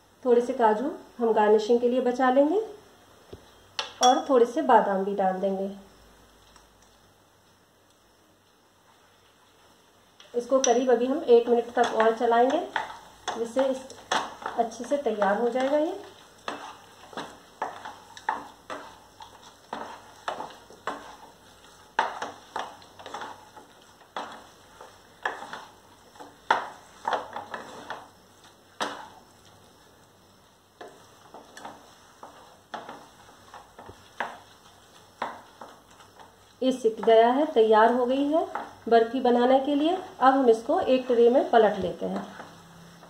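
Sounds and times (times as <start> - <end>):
spatula scraping a pan: 10.5 - 29.9, 30.8 - 38.9.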